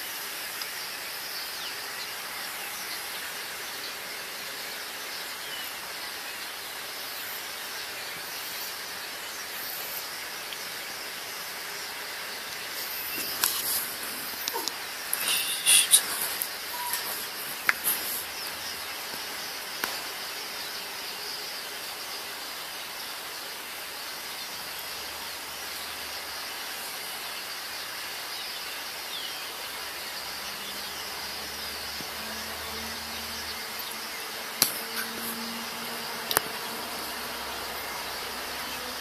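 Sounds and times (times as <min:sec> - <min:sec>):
distant flock of birds chattering: 0:00.8 - 0:23.0, 0:28.4 - 0:39.0
faint single bird calls: 0:14.5 - 0:17.7.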